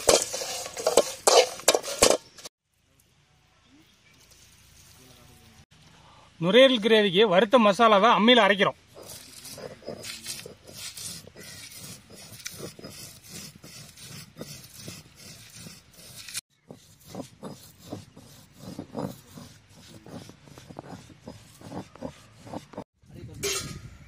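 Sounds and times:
stone roller grinding spices: 0.0s - 2.5s, 8.6s - 22.9s.

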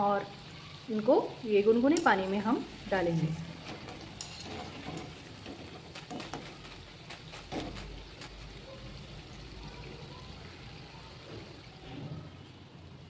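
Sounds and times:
oil dripping: 0.3s - 13.0s
metal skimmer clinking on pan: 3.5s - 6.7s.

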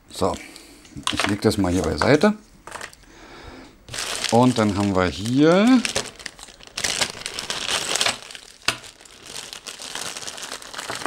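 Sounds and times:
plastic bag crinkling: 1.0s - 2.0s, 2.6s - 3.0s, 3.9s - 11.0s.

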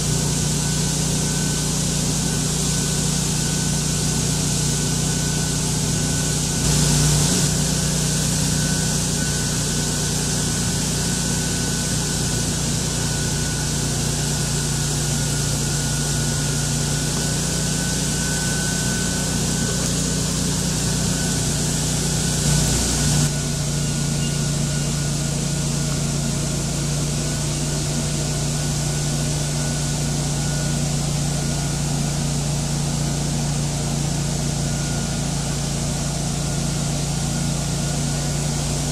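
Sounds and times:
rushing air with high whine: 0.0s - 35.0s
debris blower engine hum: 0.0s - 38.9s.

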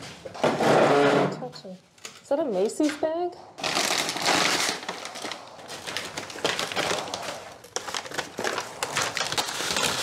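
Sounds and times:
plastic bag crinkling: 3.6s - 10.0s.

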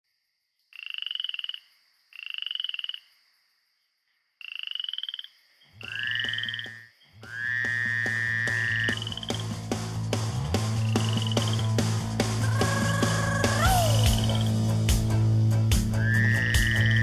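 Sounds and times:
frog croaking in pulsed trills: 0.7s - 3.4s, 4.4s - 9.4s, 10.8s - 11.7s, 16.0s - 17.0s
music: 7.7s - 17.0s.

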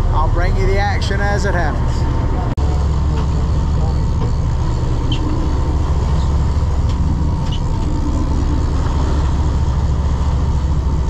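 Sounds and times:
boat engine droning: 0.0s - 11.0s
wind and water hiss: 2.7s - 11.0s.

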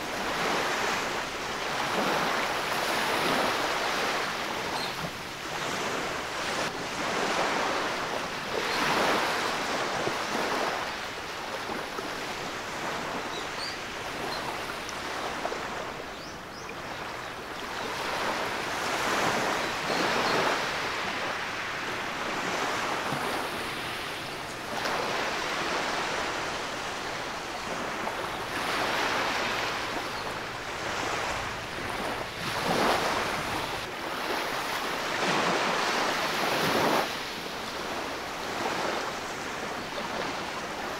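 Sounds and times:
waves washing on sandy beach: 0.0s - 40.9s.

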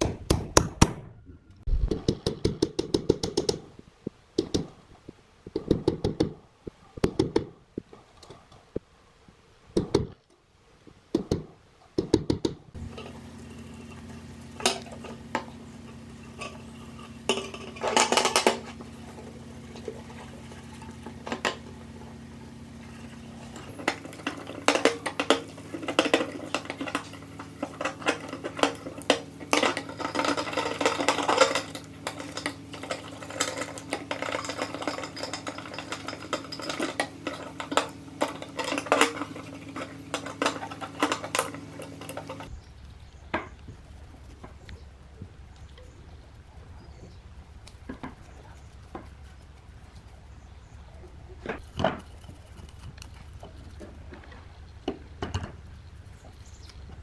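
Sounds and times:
steady low hum: 12.6s - 57.0s
toothbrush scrubbing metal: 22.8s - 42.5s, 47.5s - 50.8s, 51.6s - 53.9s.

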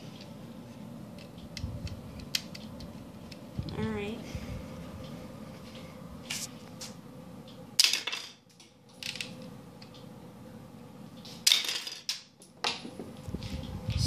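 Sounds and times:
mechanism clicks: 1.1s - 3.8s.

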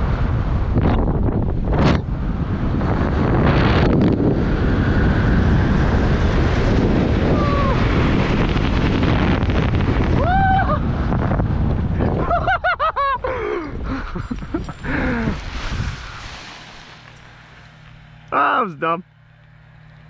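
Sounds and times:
wind rushing over microphone: 0.0s - 17.8s.

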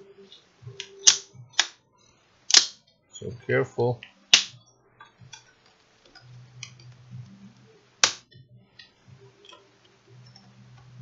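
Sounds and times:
plastic clip snapping: 2.5s - 2.8s.

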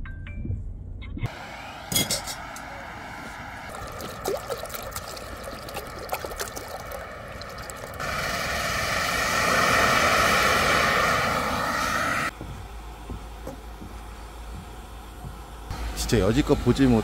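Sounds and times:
water pouring into metal pot: 3.7s - 8.0s.

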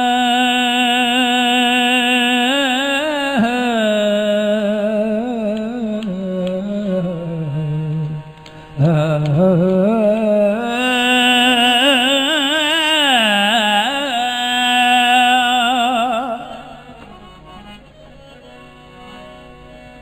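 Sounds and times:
man singing a long wavering note: 0.0s - 17.0s.

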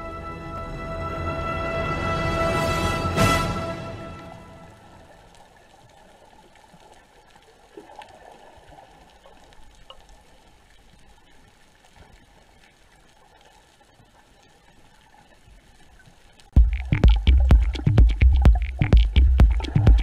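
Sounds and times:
background music: 0.0s - 5.1s, 16.6s - 20.0s
soft crackles: 4.6s - 16.6s.

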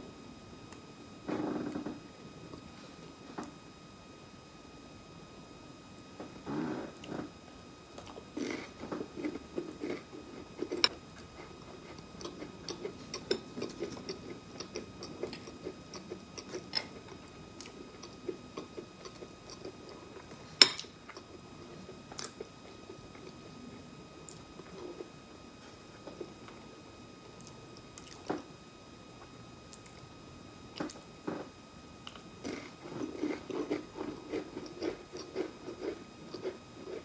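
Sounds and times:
chewing crackers: 8.0s - 21.3s, 27.4s - 28.4s, 32.0s - 37.0s.

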